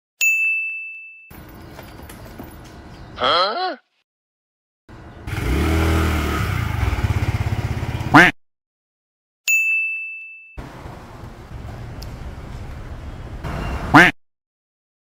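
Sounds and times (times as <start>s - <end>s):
scooter engine running: 4.9s - 8.3s.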